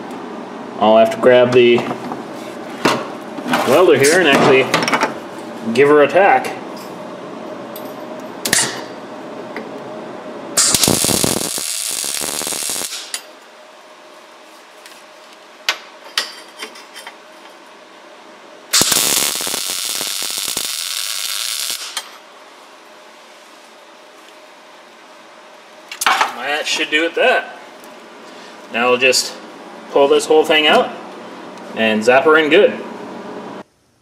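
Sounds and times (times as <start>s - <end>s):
welding arc bursts: 10.6s - 13.3s, 18.7s - 22.2s.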